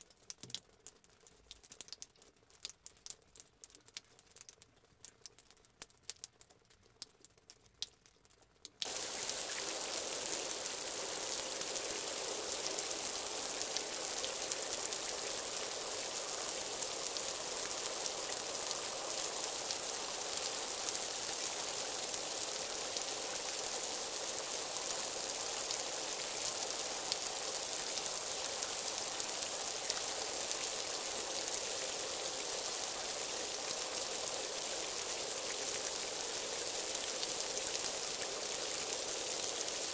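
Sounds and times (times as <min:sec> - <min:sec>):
faint small ticks: 0:00.0 - 0:08.9
heavy rain hiss: 0:08.8 - 0:39.9.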